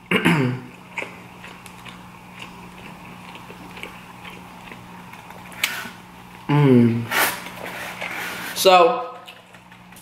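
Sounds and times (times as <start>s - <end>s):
steady low hum: 0.0s - 10.0s
close-up chewing food: 0.7s - 6.5s.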